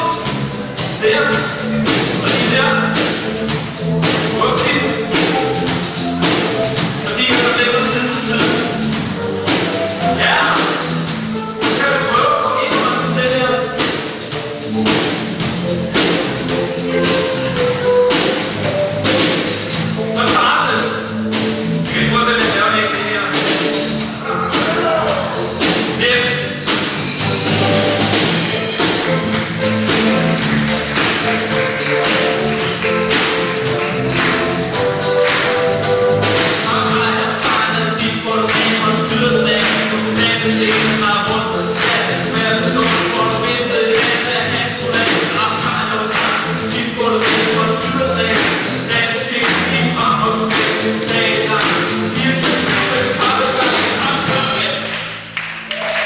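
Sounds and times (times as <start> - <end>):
person singing: 0.0 - 14.0, 16.0 - 19.4, 21.9 - 26.7, 27.5 - 54.8
keyboard: 0.0 - 55.9
drum kit beat: 0.0 - 56.0
electric guitar: 23.4 - 43.2.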